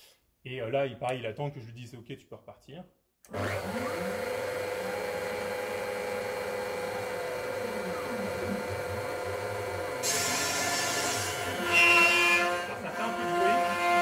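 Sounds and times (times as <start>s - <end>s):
router spindle motor whine: 3.3s - 14.0s.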